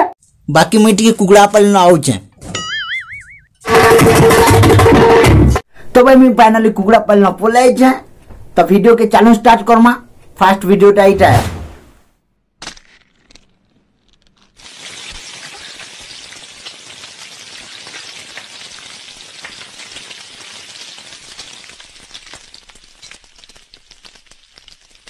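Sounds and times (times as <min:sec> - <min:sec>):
egg sizzling in a pan: 0:14.4 - 0:25.0.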